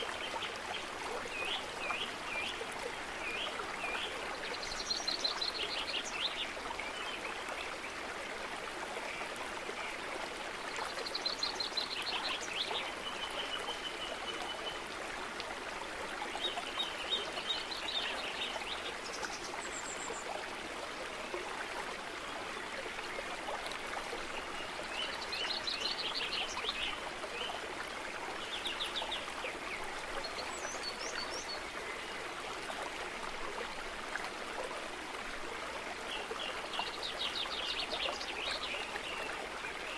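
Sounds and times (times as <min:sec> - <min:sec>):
stream running: 0:00.0 - 0:39.9.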